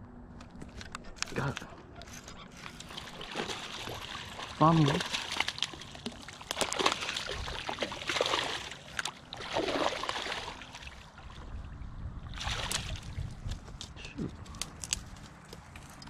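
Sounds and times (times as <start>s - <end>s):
water splashing and sloshing: 1.2s - 13.9s.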